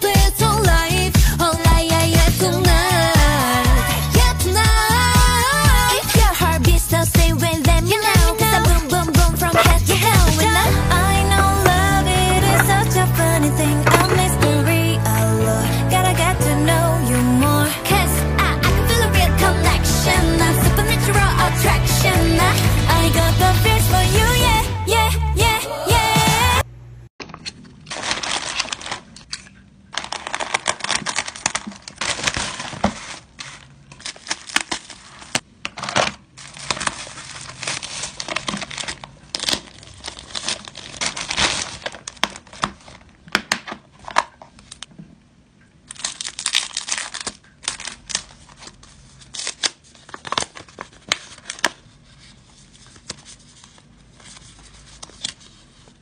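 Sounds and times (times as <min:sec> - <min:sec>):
packaging clicks and tearing: 0:27.3 - 0:44.9, 0:45.8 - 0:51.9
packaging crinkling and rustling: 0:27.3 - 0:45.1, 0:45.7 - 0:56.0.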